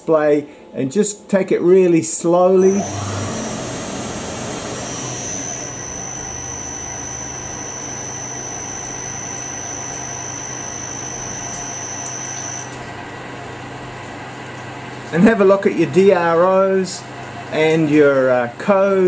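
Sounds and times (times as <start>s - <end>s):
lathe low hum: 1.9s - 18.9s
thin high-pitched whine: 2.5s - 12.9s.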